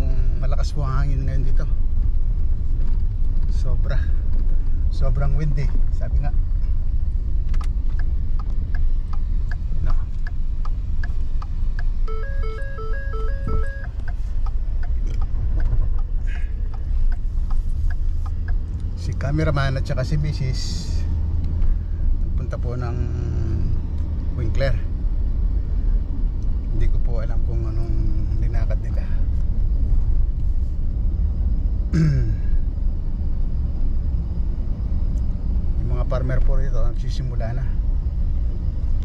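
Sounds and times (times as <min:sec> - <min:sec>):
car cabin rumble: 0:00.0 - 0:39.0
wind buffeting vehicle: 0:00.0 - 0:39.0
light regular ticking: 0:06.8 - 0:20.4.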